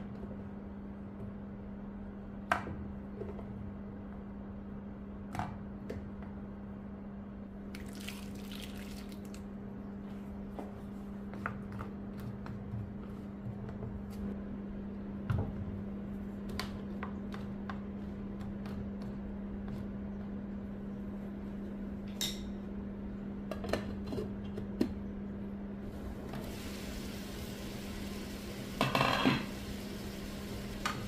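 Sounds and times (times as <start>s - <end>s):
wet bubbling and squishing: 7.8s - 9.5s.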